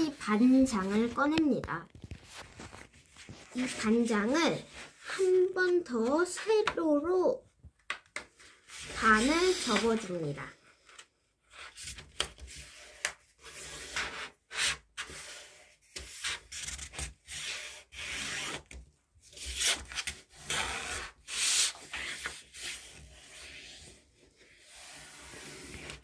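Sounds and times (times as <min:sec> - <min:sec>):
paper rustling and rubbing: 0:01.9 - 0:06.4.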